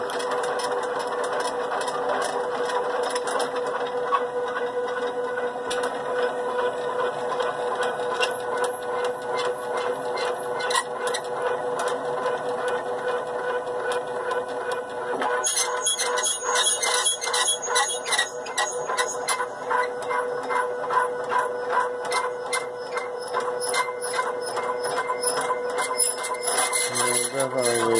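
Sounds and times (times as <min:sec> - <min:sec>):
stepper motor whine: 0:15.0 - 0:27.9
dry rubbing squeak: 0:15.4 - 0:27.9.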